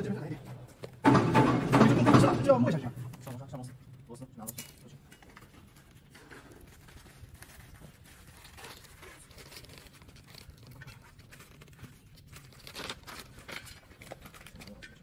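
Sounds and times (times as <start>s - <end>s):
plastic film crinkling: 5.2s - 15.0s.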